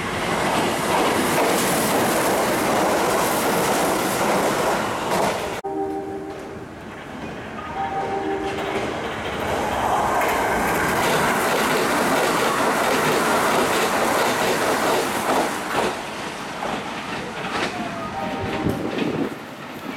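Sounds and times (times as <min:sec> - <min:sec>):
train passing at speed: 0:00.0 - 0:19.9
wheels clacking over rail joints: 0:08.6 - 0:18.0.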